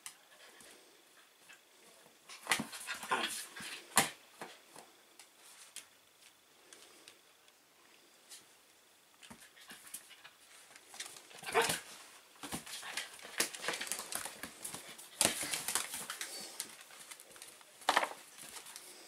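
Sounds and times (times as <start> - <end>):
dogs scuffling: 9.3 - 19.0.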